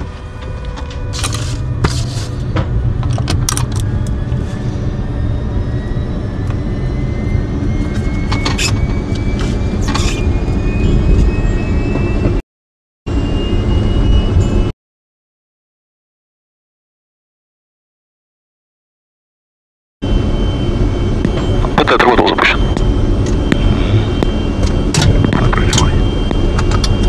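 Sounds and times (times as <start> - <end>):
turbine engine spooling up: 0.0 - 12.4, 13.1 - 14.7, 20.0 - 27.0.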